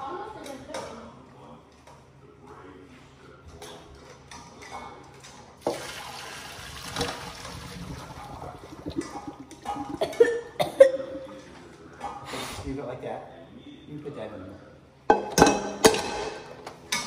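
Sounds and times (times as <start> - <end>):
water poured into metal colander: 5.7 - 10.0.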